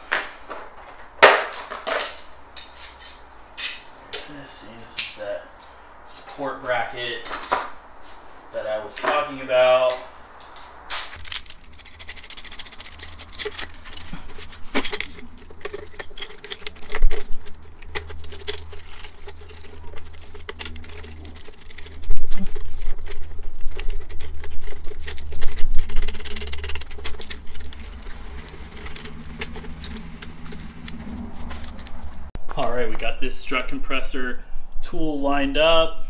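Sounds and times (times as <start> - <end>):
metal tool clinking and clattering: 11.2 - 32.3.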